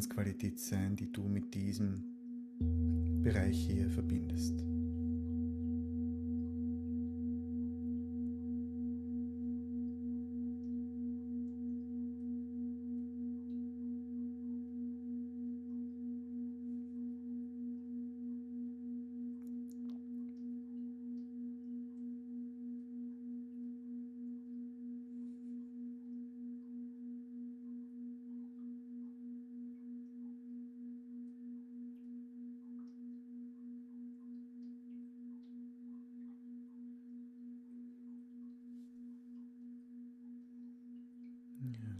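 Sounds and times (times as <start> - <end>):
singing bowl ringing: 2.2 - 31.0.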